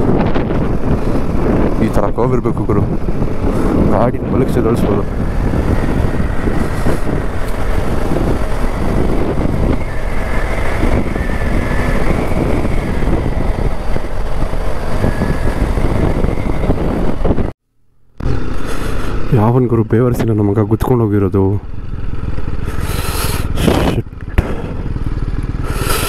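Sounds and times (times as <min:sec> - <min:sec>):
motorcycle engine running: 0:00.0 - 0:17.5, 0:18.2 - 0:26.0
wind rushing on microphone: 0:00.0 - 0:17.6, 0:18.2 - 0:26.0.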